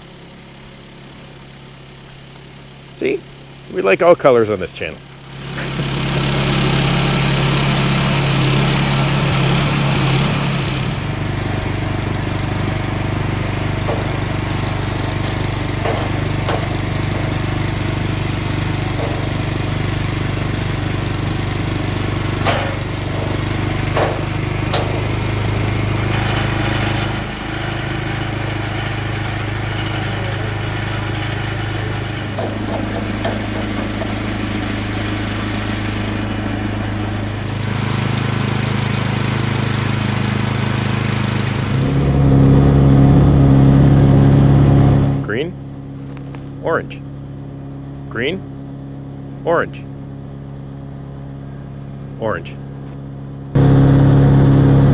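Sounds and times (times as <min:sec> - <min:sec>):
sawmill engine running: 0:00.0 - 0:54.9
log knocking on steel bed: 0:15.2 - 0:17.3.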